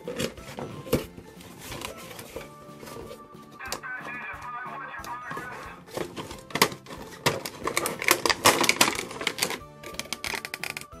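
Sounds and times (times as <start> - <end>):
cardboard rustling: 0.0 - 3.2, 5.3 - 10.5
music playing: 0.0 - 11.0
plastic packaging crinkling: 6.0 - 10.8.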